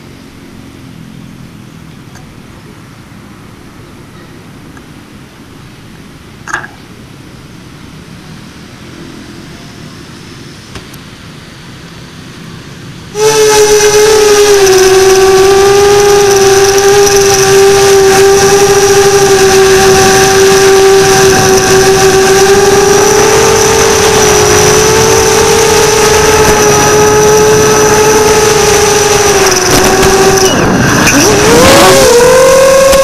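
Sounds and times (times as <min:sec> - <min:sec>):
quadcopter motors whining: 0:13.1 - 0:33.0.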